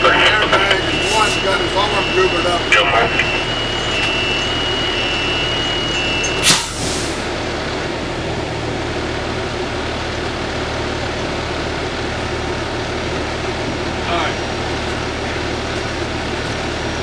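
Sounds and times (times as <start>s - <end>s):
fire engine idling: 0.0s - 17.0s
thin high tone: 0.8s - 6.8s.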